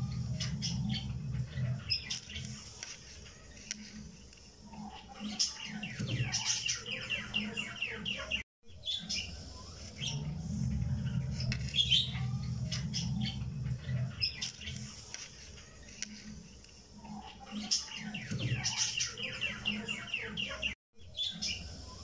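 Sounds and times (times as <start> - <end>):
low hum: 0.0 - 1.9, 9.2 - 14.3
birds chirping: 0.0 - 22.0.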